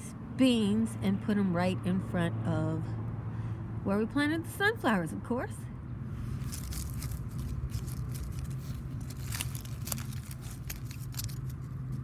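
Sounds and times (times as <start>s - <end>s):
dry leaves crackling: 6.1s - 12.0s
soil scraping: 6.1s - 12.0s.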